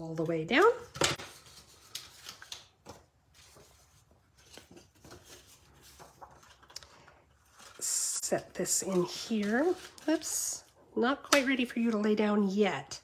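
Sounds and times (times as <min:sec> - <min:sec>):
paper rustling: 0:00.6 - 0:10.7.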